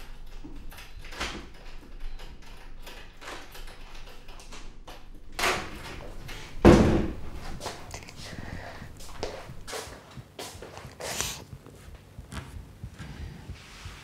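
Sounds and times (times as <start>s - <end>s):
faint clicks and knocks: 0.0s - 13.0s
door shutting with heavy thud: 5.3s - 9.7s.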